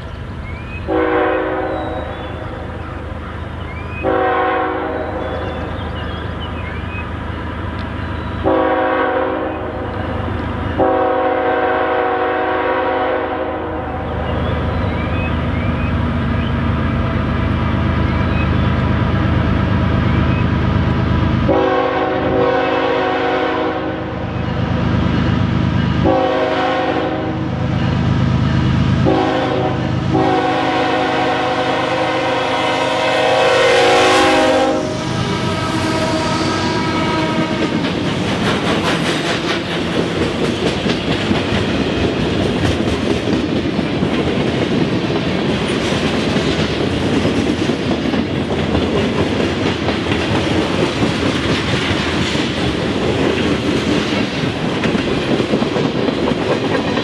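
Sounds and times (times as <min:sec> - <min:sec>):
diesel locomotive rumble: 0:00.0 - 0:57.0
locomotive air horn blasts: 0:00.9 - 0:02.1, 0:04.0 - 0:05.5, 0:08.4 - 0:09.8, 0:10.8 - 0:14.1, 0:21.5 - 0:24.3, 0:26.0 - 0:27.6, 0:29.0 - 0:37.9.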